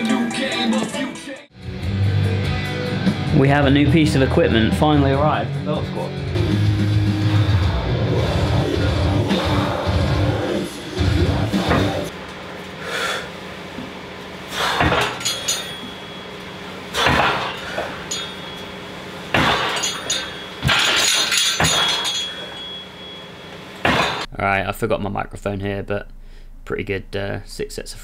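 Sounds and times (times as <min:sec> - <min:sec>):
weight plates clanking on metal: 0:14.7 - 0:16.3, 0:17.0 - 0:23.3.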